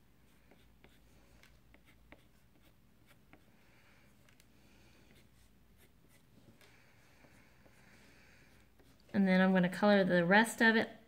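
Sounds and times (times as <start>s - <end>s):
crayon scratching on paper: 0.2s - 3.6s, 4.8s - 6.3s.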